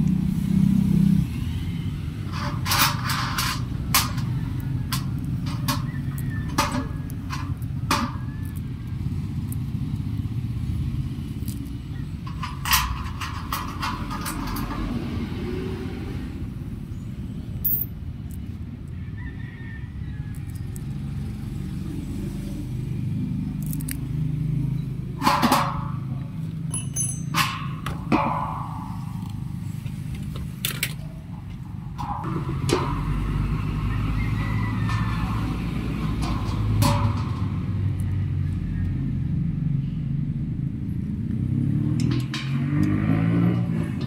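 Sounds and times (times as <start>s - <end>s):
metallic clicks of nuts and bolts: 2.3s - 8.6s, 11.4s - 15.2s, 17.6s - 18.4s, 25.2s - 29.5s, 30.1s - 33.8s, 42.0s - 44.0s
steady low rumble: 25.8s - 41.4s.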